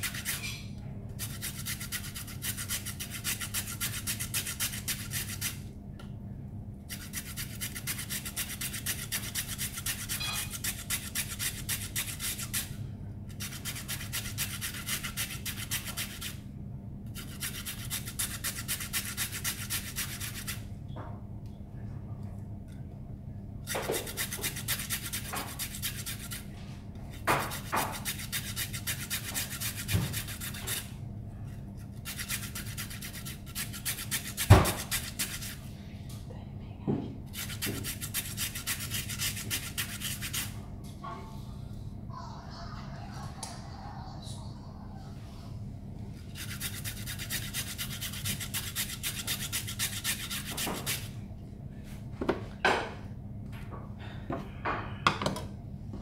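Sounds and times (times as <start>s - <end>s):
carrot grating on metal grater: 0.0s - 0.5s, 1.2s - 5.6s, 6.9s - 12.7s, 13.3s - 16.3s, 17.1s - 20.6s, 23.7s - 26.4s, 27.1s - 30.9s, 31.8s - 35.6s, 37.3s - 40.5s, 46.4s - 51.1s.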